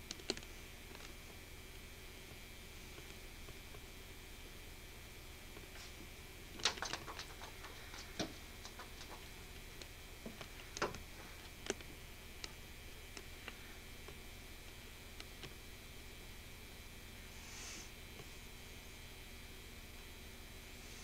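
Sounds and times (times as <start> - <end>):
taps and knocks on window: 6.6 - 9.3
quick clicks: 6.6 - 9.4.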